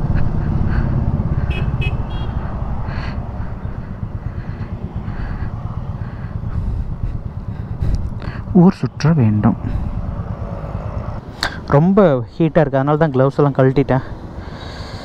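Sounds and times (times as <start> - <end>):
motorcycle engine running: 0.0 - 11.2
vehicle horn toots: 1.4 - 2.5.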